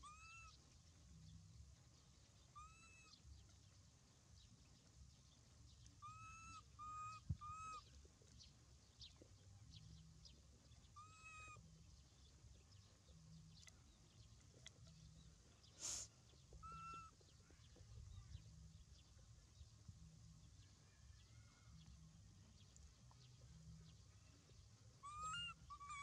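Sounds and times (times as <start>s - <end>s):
infant monkey coo calls: 0.0s - 0.6s, 2.5s - 3.2s, 6.0s - 7.9s, 11.0s - 11.6s, 16.6s - 17.2s, 25.0s - 26.0s.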